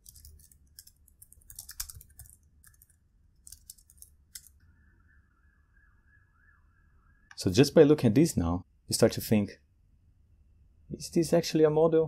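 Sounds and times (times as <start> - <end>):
keyboard typing: 0.0 - 4.6.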